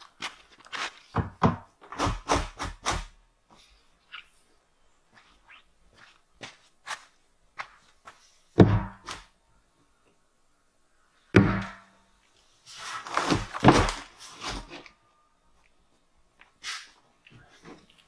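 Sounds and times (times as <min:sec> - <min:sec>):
scraping in loose dirt: 0:00.0 - 0:01.2, 0:05.1 - 0:08.4, 0:12.6 - 0:14.8.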